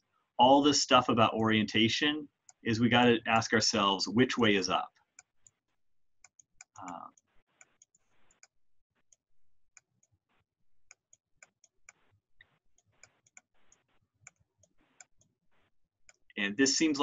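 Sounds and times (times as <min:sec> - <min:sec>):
stylus clicking on pen tablet: 0:05.0 - 0:15.4
soft scratchy pen strokes: 0:11.4 - 0:15.7.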